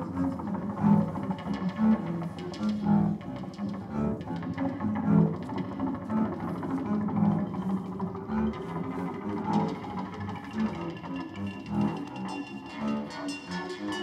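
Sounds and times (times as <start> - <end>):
double bass notes: 0.0 - 11.0.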